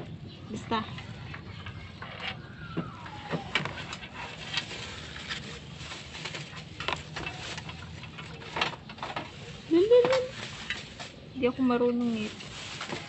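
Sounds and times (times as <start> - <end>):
plastic wrap crinkling: 0.5 - 13.0.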